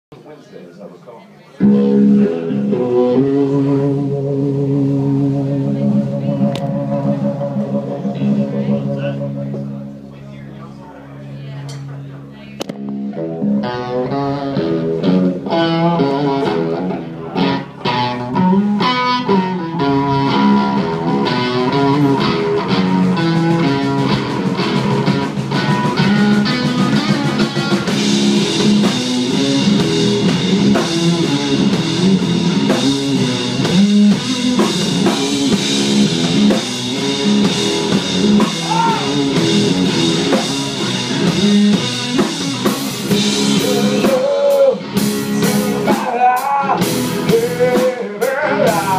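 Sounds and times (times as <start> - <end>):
distorted electric guitar riff: 1.6 - 48.9
electric bass: 1.6 - 48.9
drum kit: 11.7 - 48.9.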